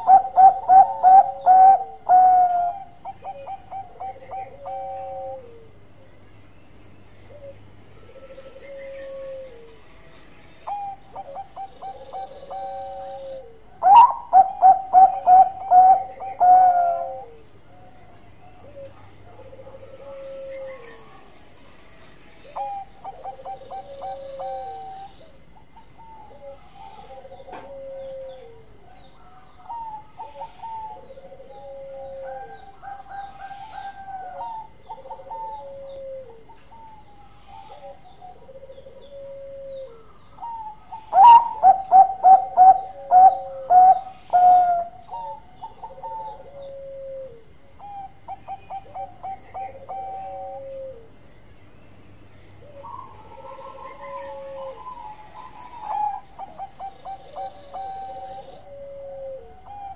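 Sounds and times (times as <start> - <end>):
dove cooing: 0.0 - 6.1, 7.2 - 9.8, 10.6 - 21.3, 22.4 - 51.3, 52.5 - 59.9.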